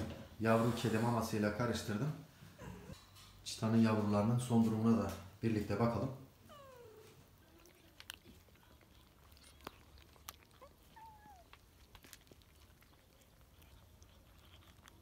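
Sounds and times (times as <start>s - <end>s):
cat meowing: 2.6s - 3.0s, 6.4s - 7.2s, 10.5s - 11.6s
kitten mewing: 2.6s - 3.0s, 6.4s - 7.8s, 10.3s - 11.6s
kittens chewing dry kibble: 6.4s - 15.0s.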